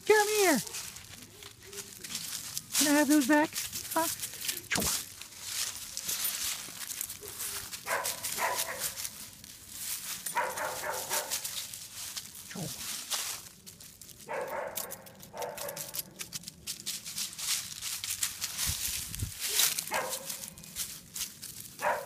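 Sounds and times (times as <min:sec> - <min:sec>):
dry leaves crunching underfoot: 0:00.0 - 0:22.0
small dog barking: 0:07.2 - 0:09.0, 0:10.3 - 0:11.4, 0:14.3 - 0:16.0, 0:19.5 - 0:20.4, 0:21.8 - 0:22.0.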